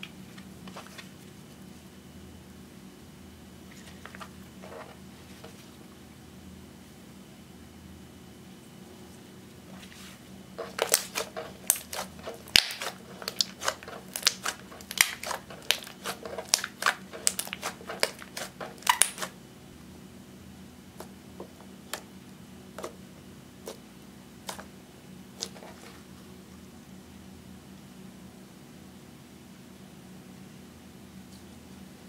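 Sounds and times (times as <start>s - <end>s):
slime clicking and popping: 10.7s - 19.3s.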